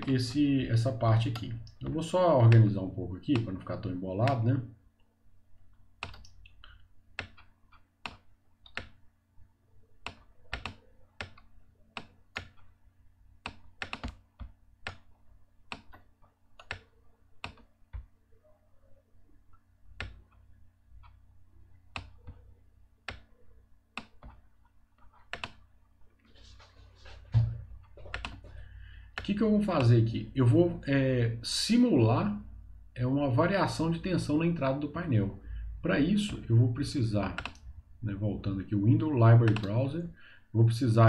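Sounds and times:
faint steady hum: 0:00.0 - 0:41.0
computer mouse clicking: 0:06.0 - 0:09.0, 0:10.0 - 0:12.7, 0:13.4 - 0:15.1, 0:15.7 - 0:18.1, 0:20.0 - 0:20.4, 0:21.9 - 0:24.4, 0:25.0 - 0:25.6, 0:28.0 - 0:28.6, 0:37.3 - 0:37.7, 0:39.5 - 0:39.7.

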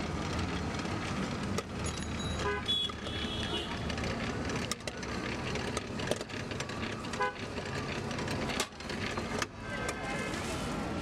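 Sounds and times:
street traffic noise: 0:00.0 - 0:11.0
vehicle horn toot: 0:02.4 - 0:03.8.

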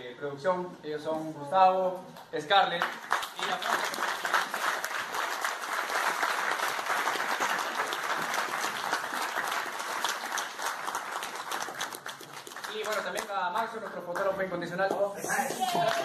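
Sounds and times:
audience applauding: 0:02.8 - 0:14.3, 0:15.2 - 0:16.0.

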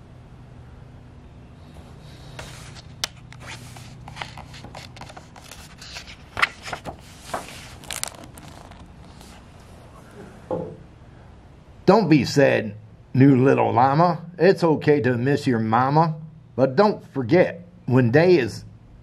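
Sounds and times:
book pages turning: 0:01.8 - 0:09.7.

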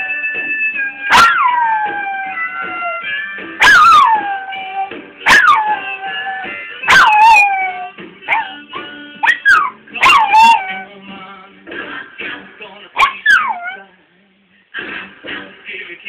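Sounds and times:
old pop song: 0:00.0 - 0:16.0
dog howling: 0:00.8 - 0:11.0, 0:13.0 - 0:13.9.

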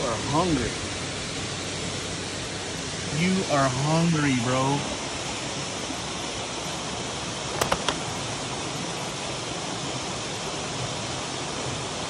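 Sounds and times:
water rushing through spillway: 0:00.0 - 0:12.0
sharp clicks: 0:07.5 - 0:08.0.

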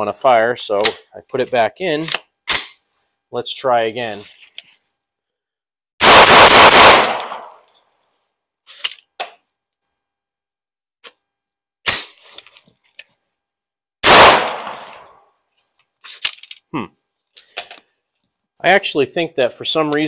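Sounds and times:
rifle shot: 0:06.0 - 0:07.6, 0:14.0 - 0:15.1.

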